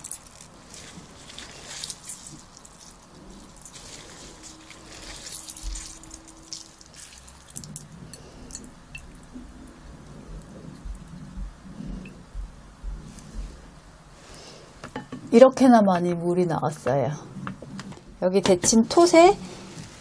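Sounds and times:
glove rubbing: 0.5s - 7.6s.

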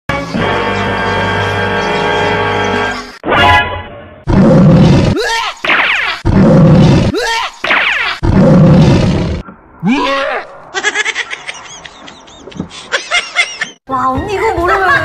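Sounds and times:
lion roar: 4.3s - 5.2s, 6.2s - 7.2s, 8.2s - 10.6s
high-pitched snickering laugh: 10.7s - 13.8s.

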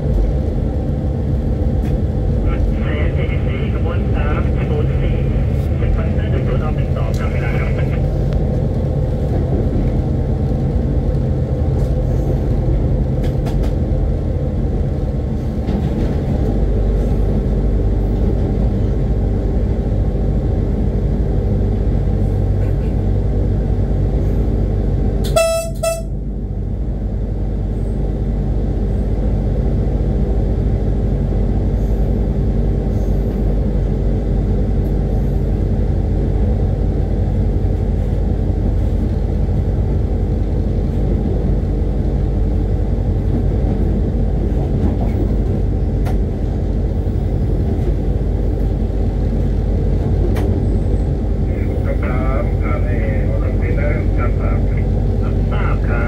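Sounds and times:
diesel locomotive droning: 0.0s - 56.0s
locomotive horn blast: 25.2s - 26.2s.

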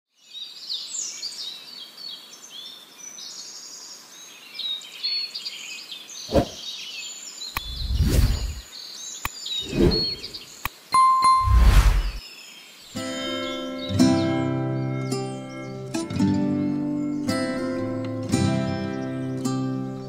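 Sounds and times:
birds chirping and whistling: 6.2s - 12.3s.

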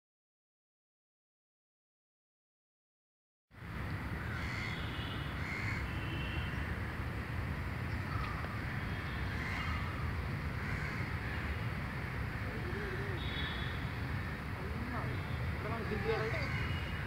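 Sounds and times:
bird calls: 7.9s - 14.4s, 15.0s - 17.0s.

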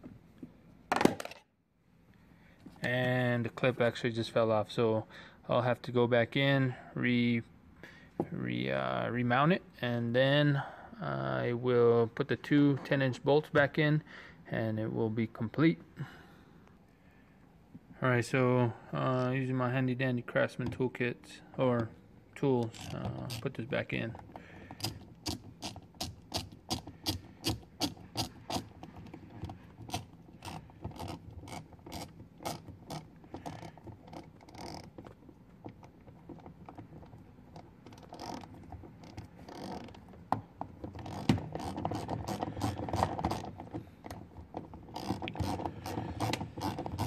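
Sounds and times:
hand ratchet clicking: 24.3s - 35.2s, 36.3s - 40.0s, 40.9s - 44.2s, 44.8s - 47.0s.

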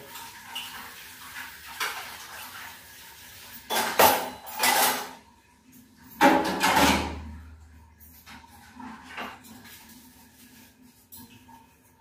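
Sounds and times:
dishes clattering in metal sink: 3.5s - 5.3s, 6.0s - 10.1s.

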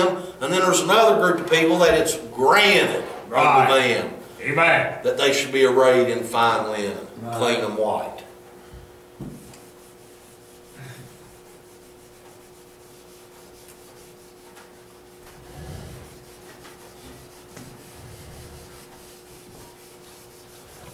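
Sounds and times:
eraser rubbing on whiteboard: 9.3s - 20.9s.

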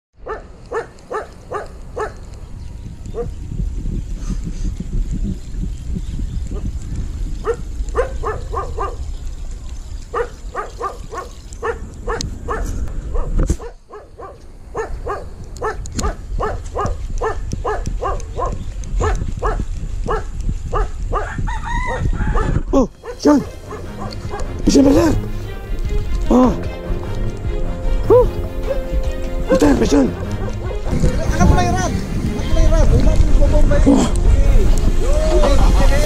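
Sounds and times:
dog barking in quick runs: 0.2s - 2.3s, 7.4s - 9.1s, 10.1s - 25.1s, 29.6s - 31.0s.

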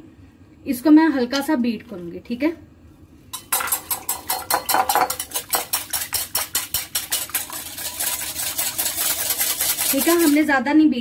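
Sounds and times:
whisk clicking against glass bowl: 3.4s - 10.5s.

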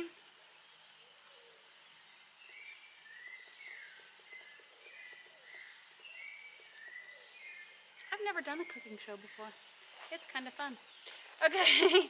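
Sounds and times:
insects droning: 0.0s - 12.0s
faint whistled calls: 2.4s - 9.4s.

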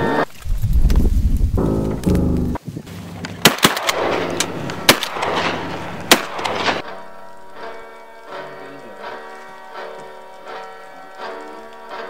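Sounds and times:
shotgun shots: 3.4s - 6.8s
music: 6.8s - 12.0s.

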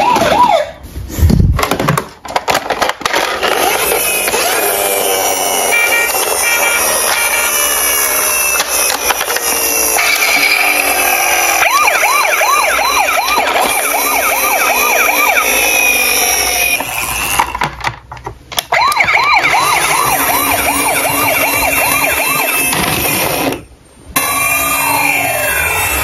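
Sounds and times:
toy siren wail: 0.0s - 0.8s, 3.4s - 17.6s, 18.7s - 23.6s, 24.2s - 26.0s
toy siren yelping: 0.0s - 0.8s, 3.6s - 17.6s, 18.7s - 23.6s, 24.2s - 26.0s.

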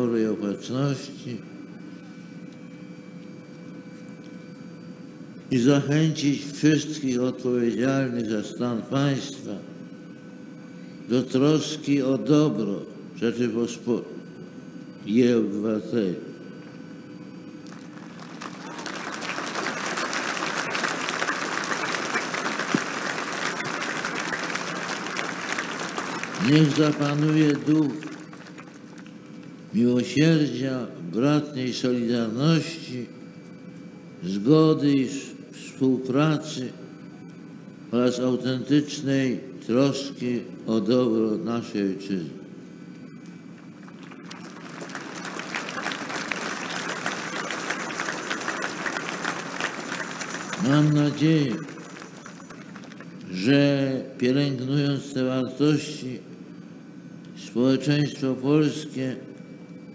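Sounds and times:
crowd applauding: 17.6s - 29.2s, 43.8s - 53.3s.

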